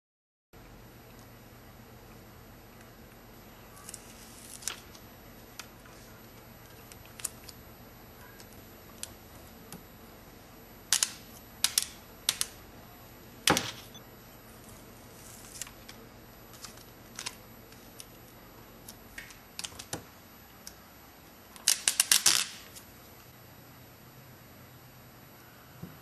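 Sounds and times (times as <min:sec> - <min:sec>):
handling clicks and crinkles: 0:02.6 - 0:07.7, 0:14.6 - 0:20.8.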